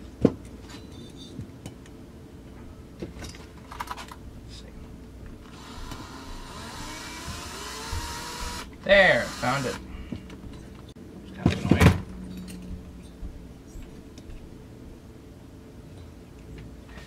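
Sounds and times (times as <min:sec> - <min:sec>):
cordless drill running: 0:05.4 - 0:09.8.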